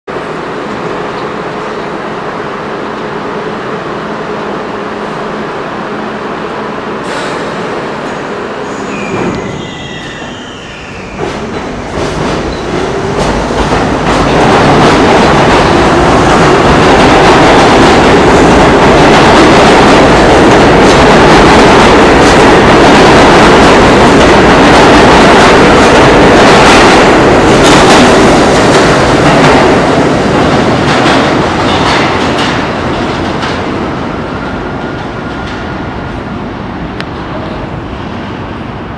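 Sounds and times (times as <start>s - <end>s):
subway train roaring past: 0.1s - 38.9s
train wheel clacks: 11.2s - 23.0s, 25.8s - 33.8s.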